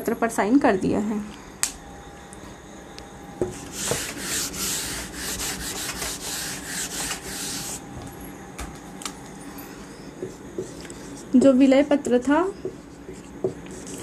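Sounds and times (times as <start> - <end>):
duster rubbing whiteboard: 3.5 - 7.8, 13.0 - 14.0.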